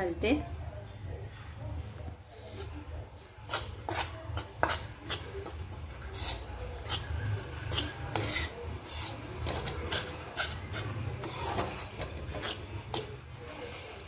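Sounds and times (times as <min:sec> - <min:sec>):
spoon scraping flour in metal pan: 0:02.4 - 0:14.0.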